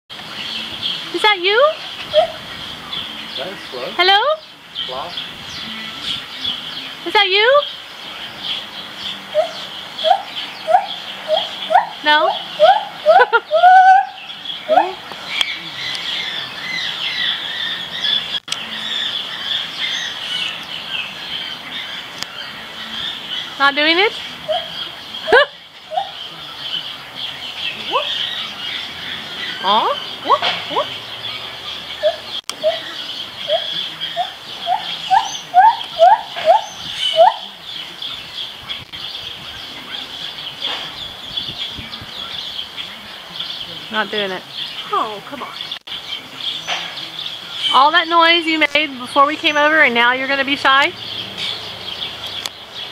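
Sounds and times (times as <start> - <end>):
small birds chirping: 0.1 - 52.9
gibbon whooping: 1.5 - 2.4, 9.3 - 15.0, 24.4 - 26.3, 27.8 - 28.5, 31.9 - 37.6.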